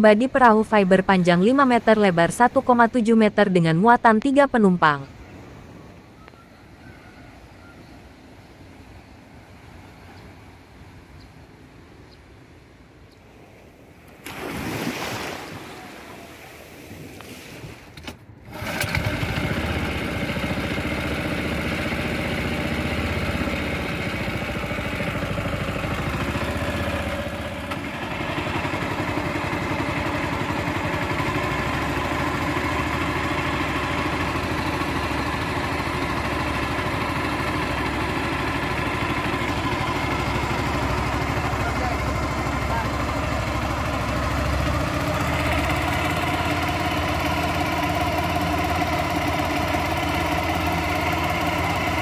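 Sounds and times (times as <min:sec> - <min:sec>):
outboard motor running: 0:18.4 - 0:52.0.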